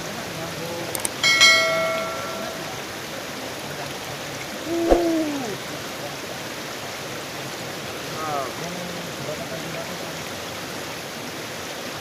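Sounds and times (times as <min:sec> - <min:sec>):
river water rushing: 0:00.0 - 0:12.0
bell-like chime: 0:01.1 - 0:02.8.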